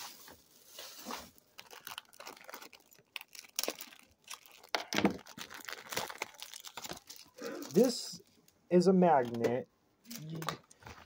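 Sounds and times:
packaging crinkling and rustling: 0:00.0 - 0:08.3.

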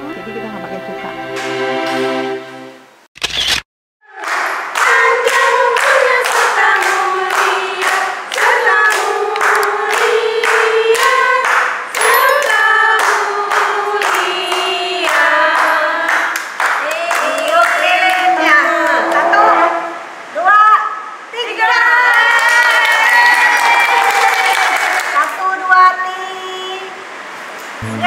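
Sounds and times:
group singing: 0:04.1 - 0:16.5
people clapping: 0:04.1 - 0:19.2, 0:22.0 - 0:25.4.

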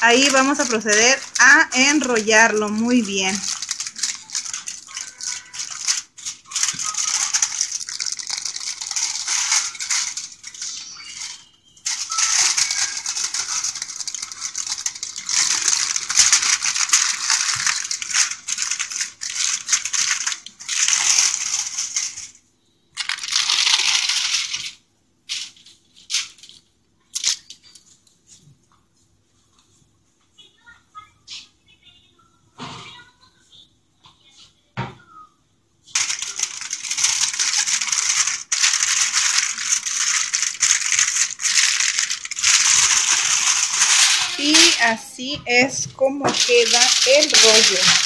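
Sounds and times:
aluminium foil crinkling: 0:00.0 - 0:22.4, 0:23.0 - 0:28.5, 0:35.9 - 0:48.0.

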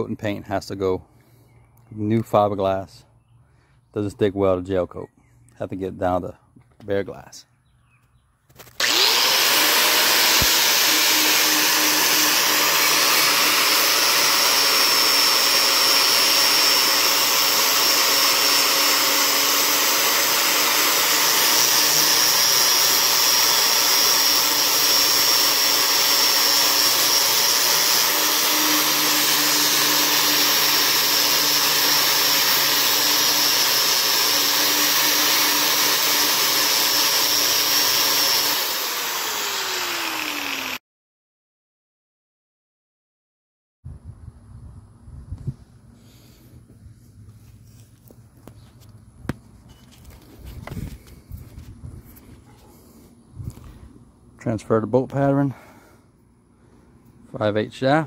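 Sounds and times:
angle grinder whining: 0:08.6 - 0:40.8.

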